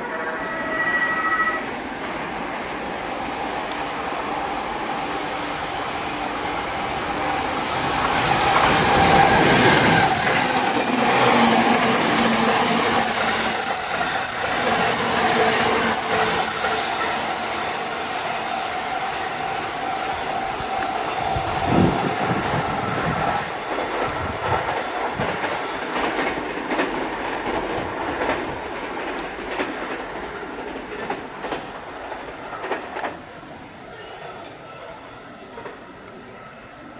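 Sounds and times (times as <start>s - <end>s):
train passing: 0.0s - 36.9s
wheels clattering over rail joints: 20.7s - 33.4s.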